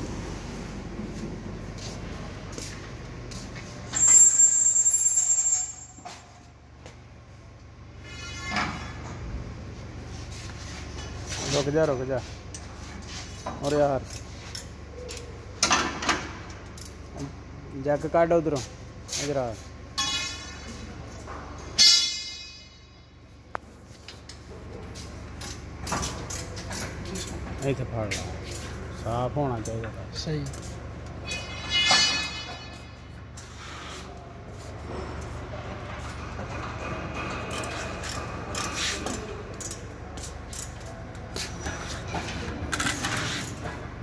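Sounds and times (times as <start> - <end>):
steady low hum: 0.0 - 4.0
factory machinery hum: 0.0 - 44.0
metal clang ringing: 21.8 - 23.2, 31.2 - 33.1.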